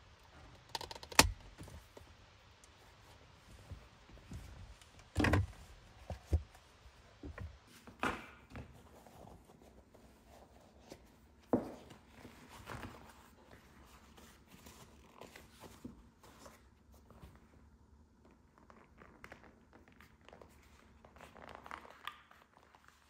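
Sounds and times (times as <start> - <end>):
leather rustling: 12.3 - 16.6, 18.5 - 23.0.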